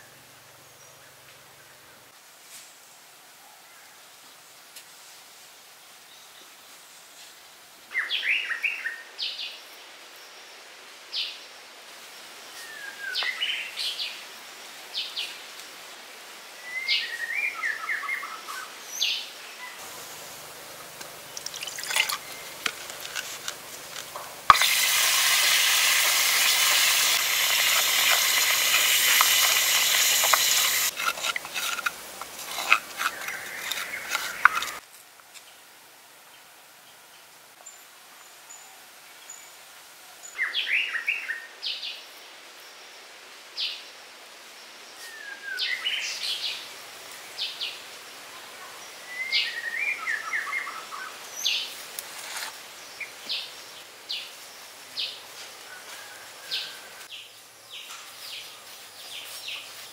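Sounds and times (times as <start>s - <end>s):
water pouring into a clay bowl: 21.3s - 23.6s, 24.4s - 31.8s
birds chirping: 24.5s - 31.8s
wooden stick stirring paste: 26.0s - 34.8s.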